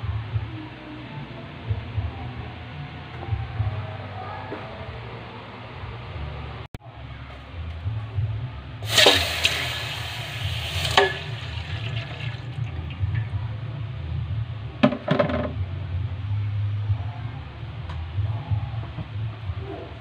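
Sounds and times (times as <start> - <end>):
liquid splashing into metal pot: 8.8 - 13.4.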